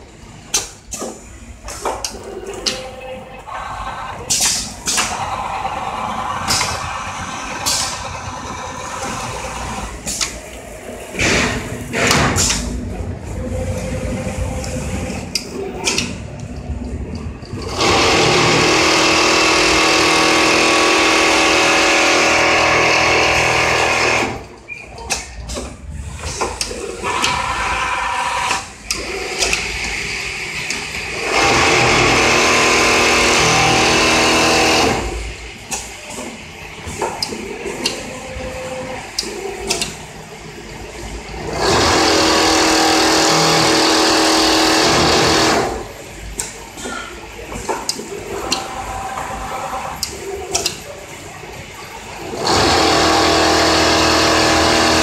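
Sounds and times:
sewing machine running: 17.6s - 24.6s, 27.0s - 35.4s, 41.4s - 45.9s, 52.1s - 55.0s.

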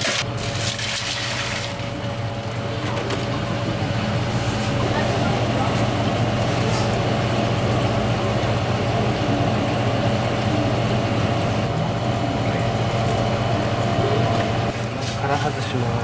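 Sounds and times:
machine hum: 0.0s - 16.0s.

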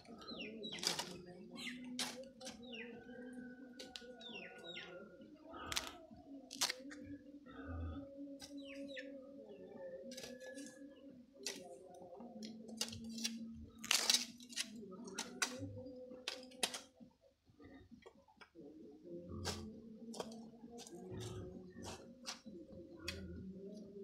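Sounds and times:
birds chirping: 0.0s - 12.6s
hoe chopping and scraping soil: 0.7s - 1.3s, 1.9s - 2.6s, 12.8s - 15.6s.

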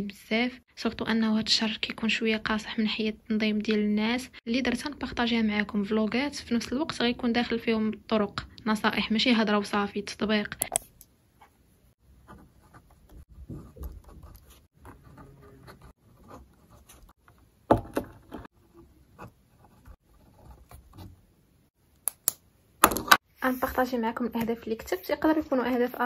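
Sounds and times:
pen scratching on paper: 12.2s - 17.2s.

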